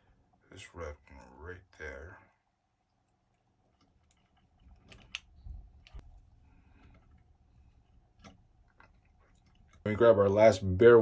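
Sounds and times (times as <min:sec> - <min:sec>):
small clicks and rustling: 0:03.0 - 0:09.9.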